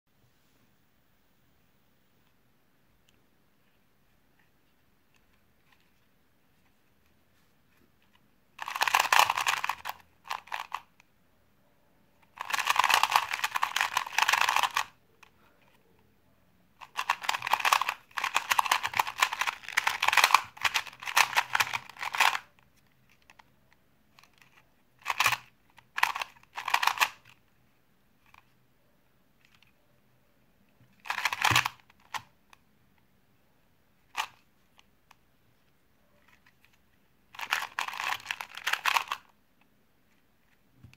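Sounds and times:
puzzle cube plastic clicking: 8.0s - 11.1s, 12.2s - 15.8s, 16.8s - 27.4s, 30.9s - 32.6s, 34.1s - 35.2s, 36.2s - 39.7s.

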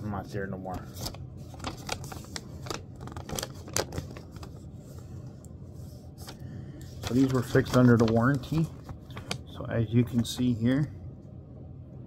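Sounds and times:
paper sheets rustling and crackling: 0.6s - 5.2s, 5.8s - 10.6s.

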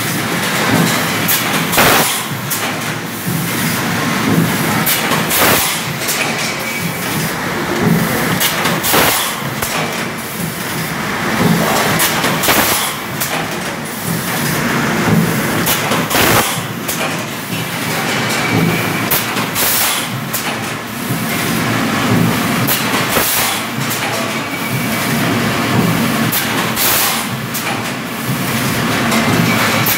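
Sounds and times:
machine mechanical din: 0.0s - 29.9s
sharp clicks and knocks: 4.2s - 7.2s, 7.8s - 10.2s, 11.4s - 14.5s, 15.1s - 21.3s.

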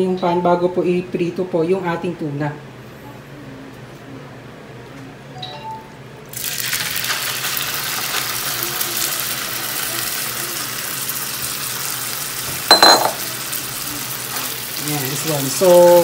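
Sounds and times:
food sizzling in hot oil: 6.3s - 16.0s.

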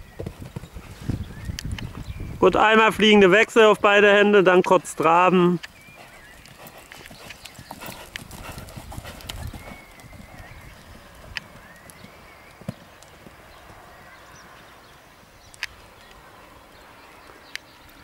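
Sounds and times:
hooves cantering on sand: 0.0s - 18.0s
sharp clicks: 1.5s - 1.9s, 5.6s - 5.8s, 6.4s - 8.4s, 15.5s - 16.2s.

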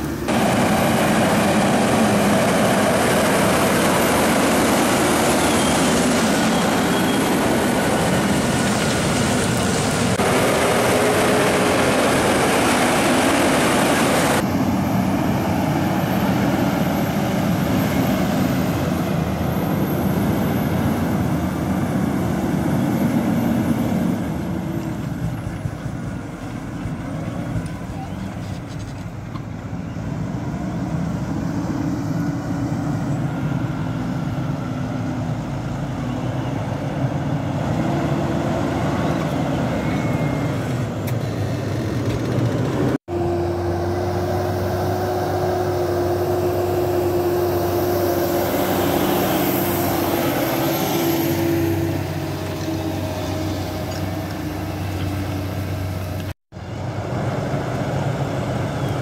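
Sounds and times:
tractor diesel engine under load: 0.0s - 59.0s.

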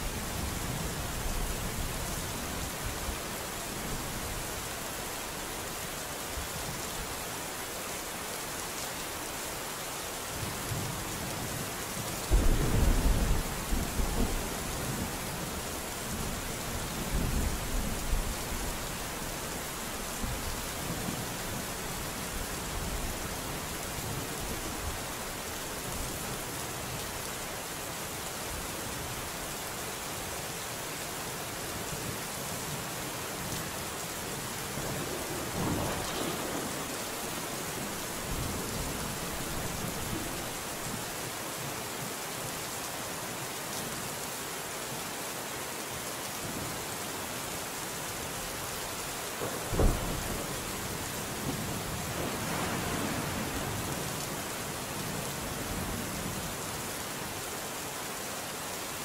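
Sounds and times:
steady rain: 0.0s - 59.0s
thunder rumble: 12.3s - 16.4s, 34.7s - 40.7s, 49.6s - 54.1s
thunderclap: 34.9s - 40.6s, 49.4s - 50.6s, 51.4s - 53.9s.

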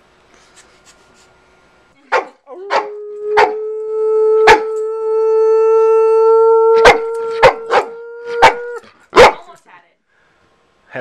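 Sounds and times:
dog barking sharply: 2.1s - 2.8s, 6.8s - 9.5s.

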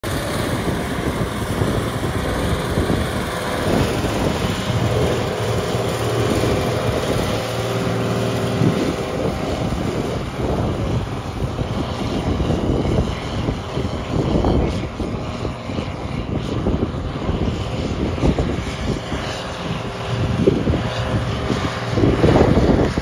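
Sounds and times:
tractor diesel engine under load: 0.0s - 14.4s.

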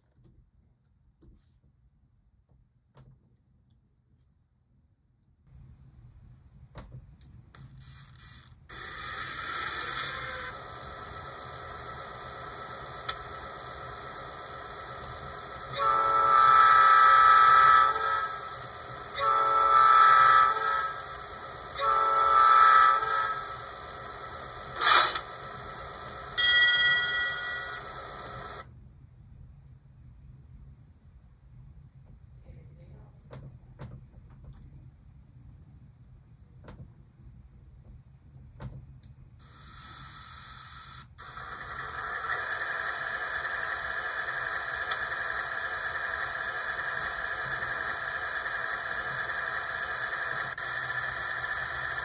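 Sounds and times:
horn blasts: 15.7s - 18.4s, 19.1s - 21.0s, 21.8s - 23.5s.

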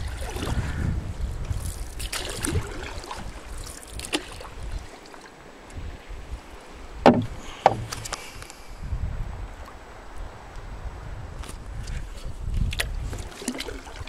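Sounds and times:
wind buffeting microphone: 0.0s - 4.9s, 5.6s - 14.0s
water lapping against canoe hull: 0.0s - 8.6s, 11.5s - 14.0s
sharp knocks: 7.0s - 8.1s.

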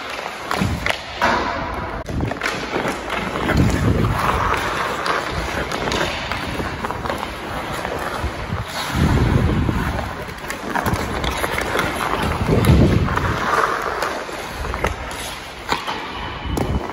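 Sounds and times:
skates scraping on ice: 0.0s - 16.9s
wind rumble on microphone: 8.2s - 10.2s, 12.2s - 13.4s.

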